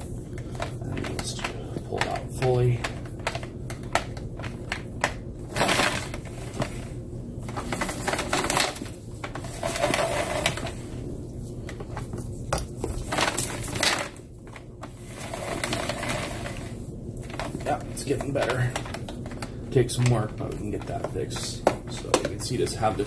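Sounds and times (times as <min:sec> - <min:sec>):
cord scraping through housing: 0:07.5 - 0:10.8, 0:15.0 - 0:19.4.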